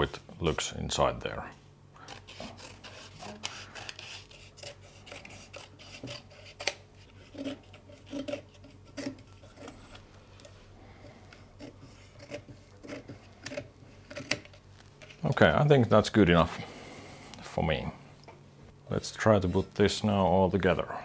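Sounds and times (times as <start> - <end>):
knife scraping paper: 2.1 - 10.0, 11.6 - 14.5.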